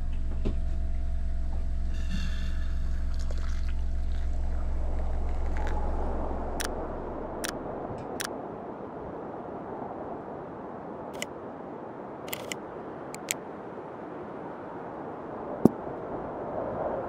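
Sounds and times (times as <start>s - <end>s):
sharp clicks: 12.3s - 12.6s, 13.2s - 13.4s.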